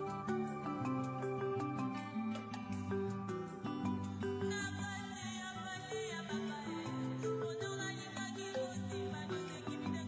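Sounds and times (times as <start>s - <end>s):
slow melody over sustained chords: 0.0s - 4.2s.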